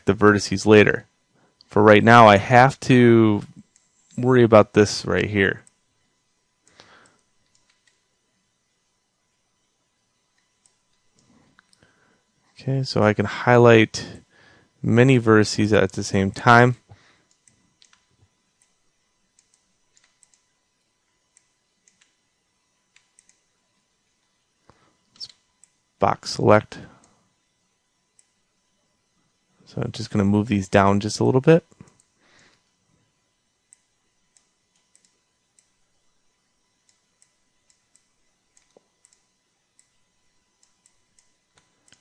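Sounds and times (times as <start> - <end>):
computer mouse and keyboard clicks: 7.1 - 8.0, 17.3 - 18.8, 19.4 - 20.5, 21.3 - 22.2, 22.9 - 23.4
background hiss: 8.6 - 42.0
faint computer mouse clicks: 17.3 - 18.8, 19.4 - 20.4, 22.9 - 23.4, 33.7 - 35.7.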